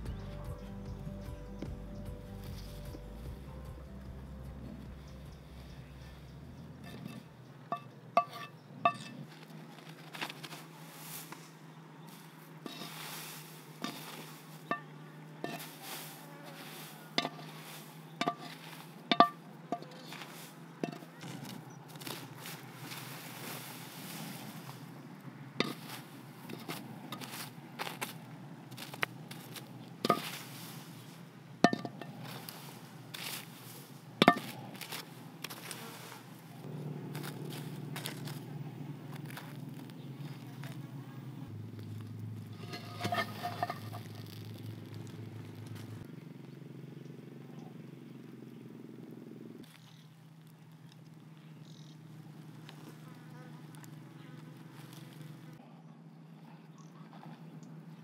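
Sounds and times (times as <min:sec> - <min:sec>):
faint low buzzing hum: 0:00.0 - 0:09.8, 0:13.4 - 0:58.0
stick knocking metal pot: 0:06.8 - 0:09.1, 0:18.2 - 0:20.0, 0:31.6 - 0:32.2, 0:34.2 - 0:34.6
stick scraping ash: 0:06.8 - 0:24.9, 0:25.6 - 0:40.8, 0:41.8 - 0:46.1, 0:53.8 - 0:55.6.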